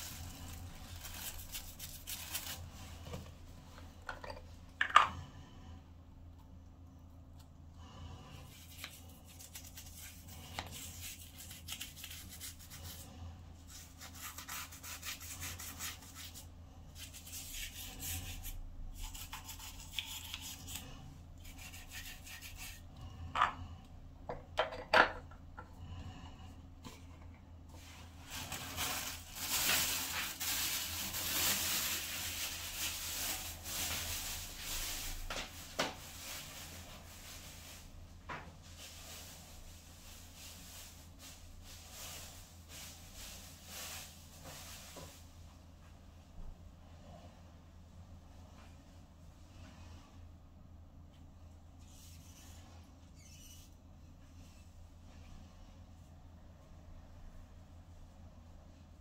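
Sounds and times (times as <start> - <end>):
rubbing and rustling: 26.9 - 45.7.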